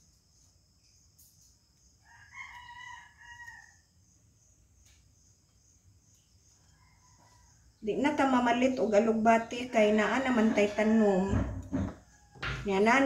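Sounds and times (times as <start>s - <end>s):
crickets chirring: 0.0s - 13.0s
rooster crowing faintly: 2.0s - 3.9s, 6.5s - 7.8s, 9.6s - 12.7s.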